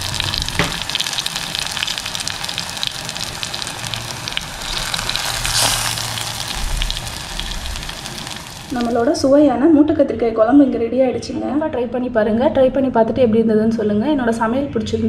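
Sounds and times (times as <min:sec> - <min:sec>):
gravy sizzling in a pot: 0:00.0 - 0:09.2.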